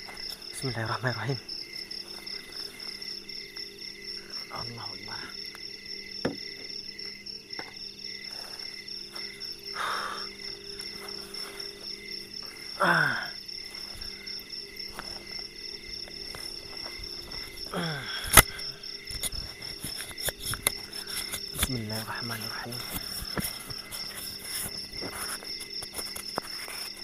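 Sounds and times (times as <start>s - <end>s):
crickets chirring: 0.0s - 27.0s.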